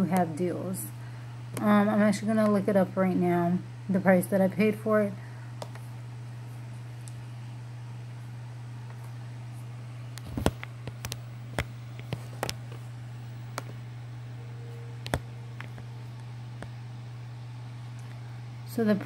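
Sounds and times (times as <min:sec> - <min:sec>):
low hum: 0:00.0 - 0:19.0
phone screen taps and clicks: 0:15.0 - 0:15.8.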